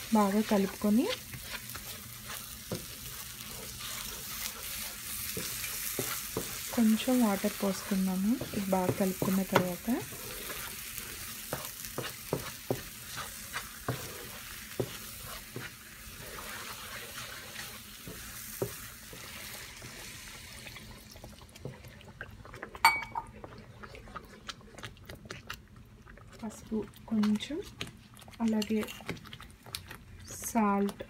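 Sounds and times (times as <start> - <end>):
paste sizzling in frying pan: 0.0 - 21.8.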